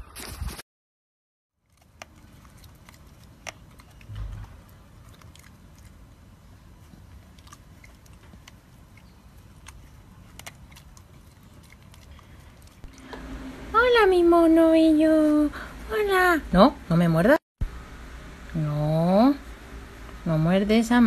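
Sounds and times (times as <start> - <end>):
dog chewing leaves: 1.6 - 13.4.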